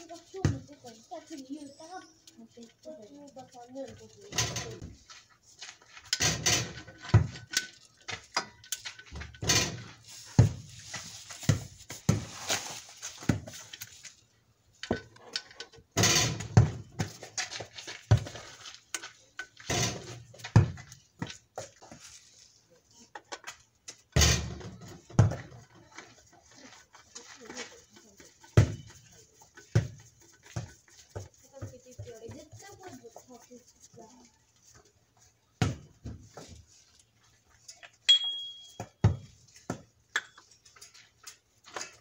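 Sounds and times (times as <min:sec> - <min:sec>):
metal tools clinking: 0:37.7 - 0:39.0.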